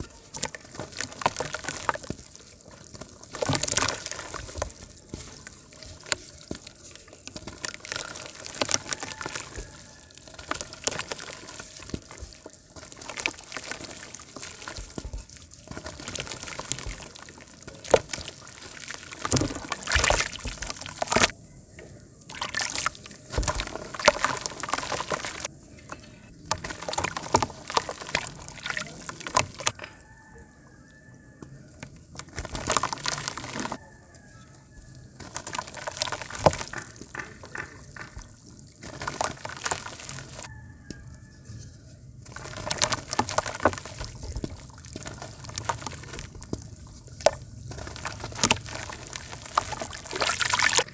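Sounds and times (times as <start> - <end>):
water splashing and sloshing: 0.0 - 30.2, 31.4 - 50.9
dirt crackling: 35.0 - 40.5, 42.2 - 50.9.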